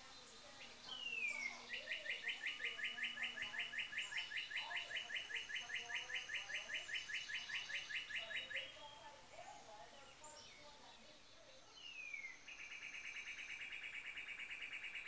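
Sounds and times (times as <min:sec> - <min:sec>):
chickadee calling: 0:00.0 - 0:15.0.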